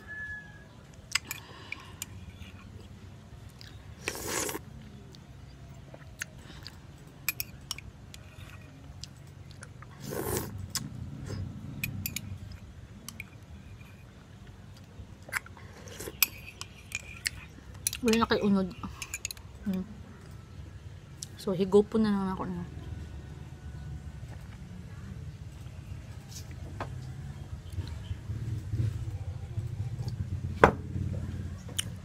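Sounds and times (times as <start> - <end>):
person chewing with wet mouth sounds: 0.9 - 19.8.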